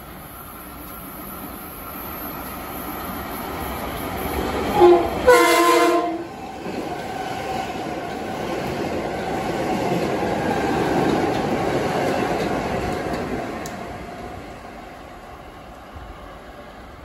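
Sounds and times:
train cars rushing past: 0:00.0 - 0:17.0
train horn: 0:04.7 - 0:06.3.

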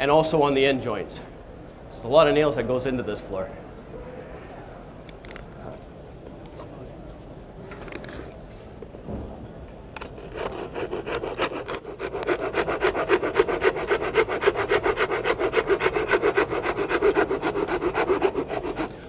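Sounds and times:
hand saw cutting wood: 0:10.0 - 0:19.0.

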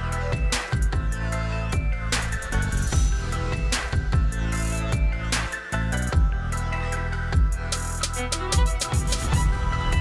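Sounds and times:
bass and synth notes: 0:00.0 - 0:10.0
drum beat: 0:00.4 - 0:05.6, 0:07.4 - 0:10.0.

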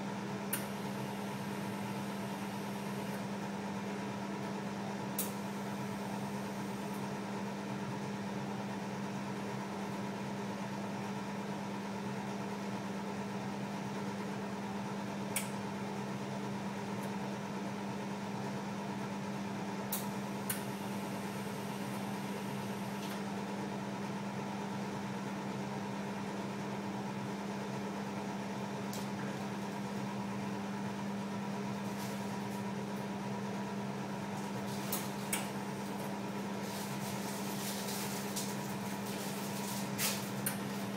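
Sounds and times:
equipment humming: 0:00.0 - 0:10.0, 0:19.8 - 0:24.8, 0:26.5 - 0:40.9
fan noise: 0:00.0 - 0:40.9.

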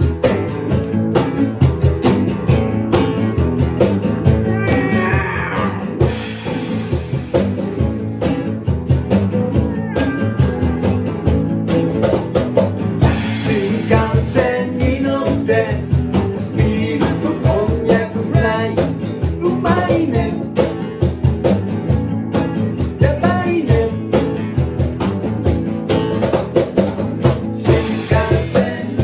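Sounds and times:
cajon beat: 0:00.0 - 0:29.0
guitars strumming: 0:00.0 - 0:29.0
person singing: 0:04.4 - 0:06.1, 0:09.6 - 0:11.1, 0:13.1 - 0:20.6, 0:23.0 - 0:24.2, 0:27.5 - 0:29.0.

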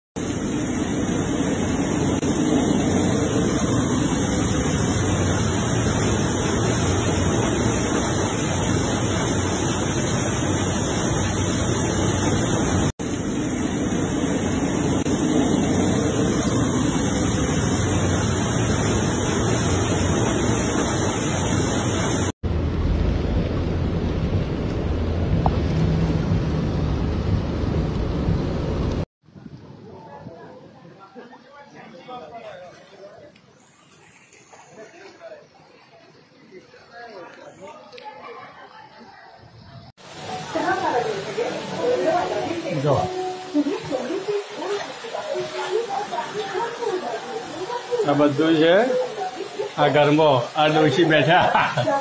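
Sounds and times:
heavy rain hissing: 0:00.2 - 0:29.1, 0:40.0 - 0:52.0
low rumble: 0:22.4 - 0:29.1.

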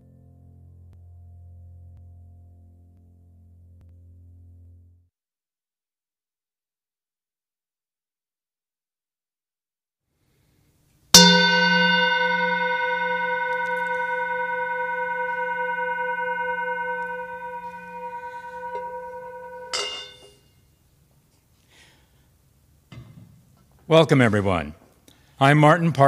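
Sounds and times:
mallet scraping bowl rim: 0:11.2 - 0:20.2
singing bowl ringing: 0:11.2 - 0:20.4.

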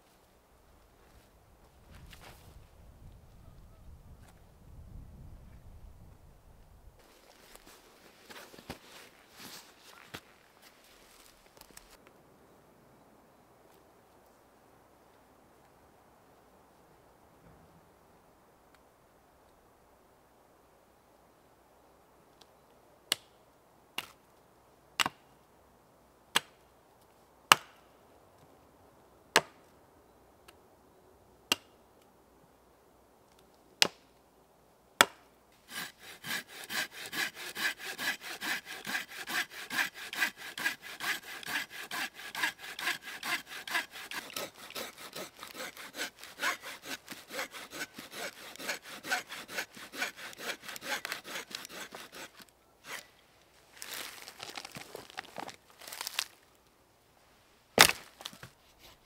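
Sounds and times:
axe chopping wood: 0:27.5 - 0:27.8, 0:35.0 - 0:35.9, 0:57.8 - 0:58.4
hand saw cutting log: 0:35.6 - 0:53.1.

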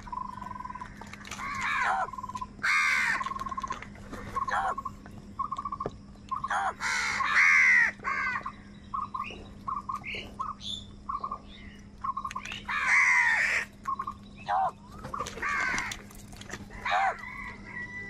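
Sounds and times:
crows cawing: 0:00.5 - 0:03.6, 0:06.4 - 0:08.7, 0:12.6 - 0:13.7, 0:14.5 - 0:16.1, 0:16.7 - 0:18.0.

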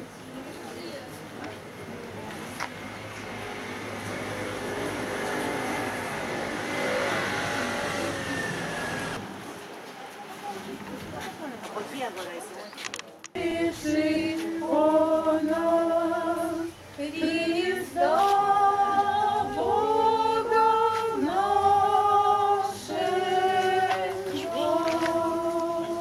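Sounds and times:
a cappella choir singing: 0:13.3 - 0:26.0.

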